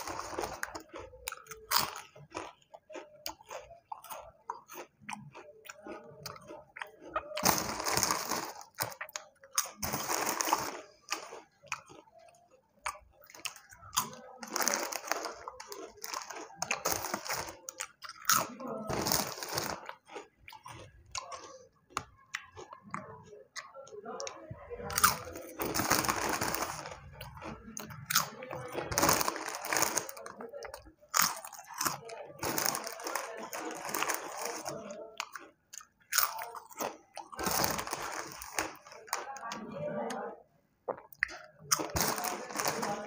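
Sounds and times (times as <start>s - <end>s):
foil snack bag crinkling: 0.0s - 1.0s, 7.0s - 11.5s, 13.4s - 20.2s, 24.9s - 35.1s, 36.2s - 39.4s, 41.7s - 43.0s
person chewing crisp snacks: 0.0s - 39.8s, 40.8s - 43.0s.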